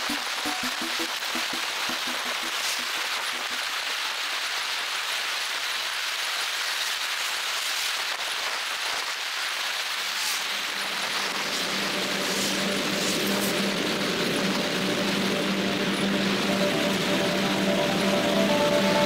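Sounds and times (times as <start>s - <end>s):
low hum with overtones: 11.8s - 19.0s.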